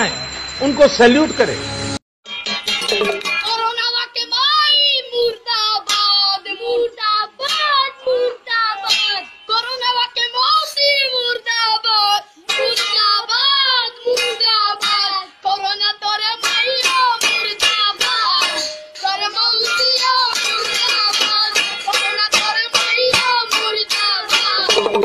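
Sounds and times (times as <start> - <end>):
child singing high-pitched: 3.4 - 25.0
music with sharp beat: 16.4 - 25.0.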